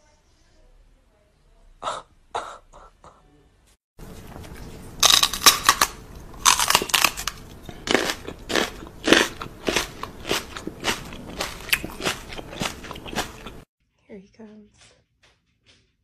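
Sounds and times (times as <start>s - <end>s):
crunchy food being chewed: 4.0s - 13.7s.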